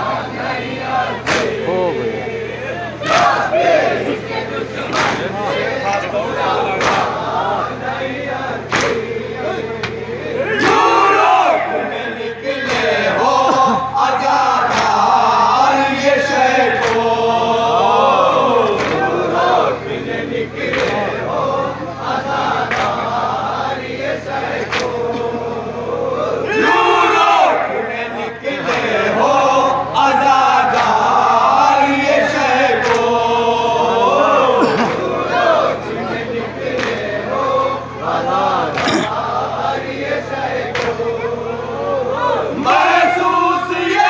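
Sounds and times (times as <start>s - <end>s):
electrical hum: 0.0s - 44.0s
men chanting in unison: 0.0s - 44.0s
lead male voice: 1.6s - 2.3s.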